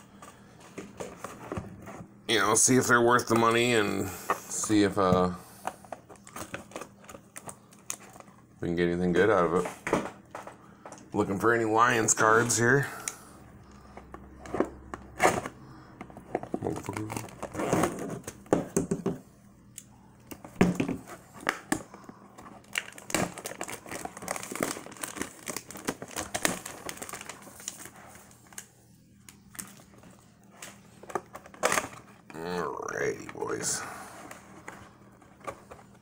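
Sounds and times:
plastic shrink-wrap tearing and crinkling: 16.6s - 18.3s, 22.5s - 28.7s.

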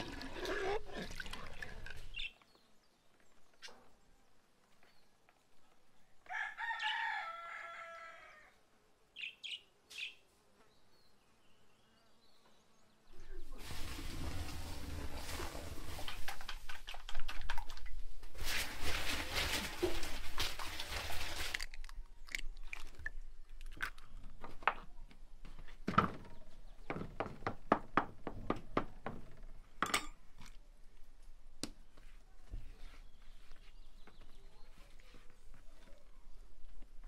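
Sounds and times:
water splashing and dripping: 0.0s - 2.3s, 13.6s - 24.0s.

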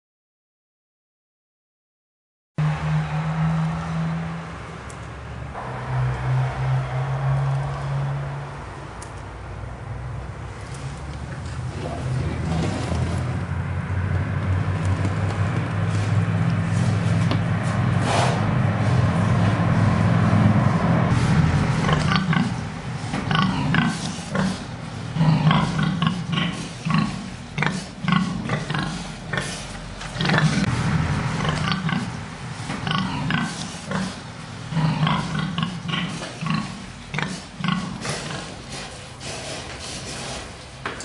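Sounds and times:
steady low hum: 4.5s - 39.0s
pigs grunting: 11.6s - 13.4s, 17.9s - 19.7s, 21.2s - 40.5s.

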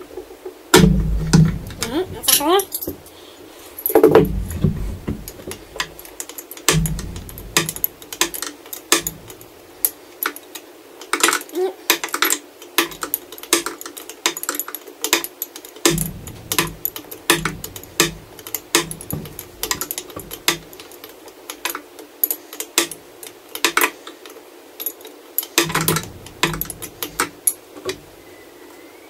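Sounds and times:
heavier knocks: 0.8s - 3.1s, 3.8s - 9.7s, 15.8s - 21.0s, 25.6s - 28.2s
hand tool metallic clicks: 0.8s - 3.2s, 3.8s - 28.0s.

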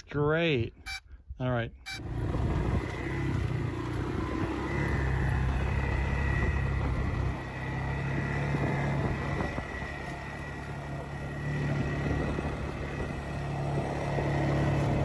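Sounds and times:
quad bike engine running: 1.9s - 15.0s.

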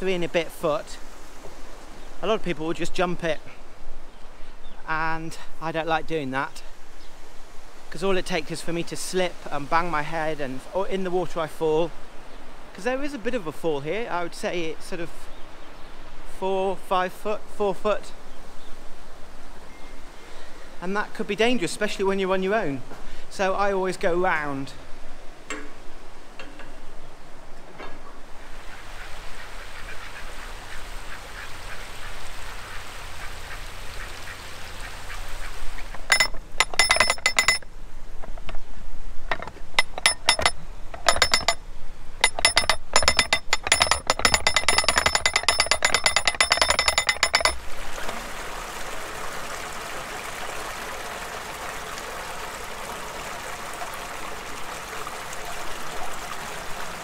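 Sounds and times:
rushing water: 0.0s - 57.0s
ratchet pawl clicking: 39.3s - 41.6s, 42.2s - 47.6s.

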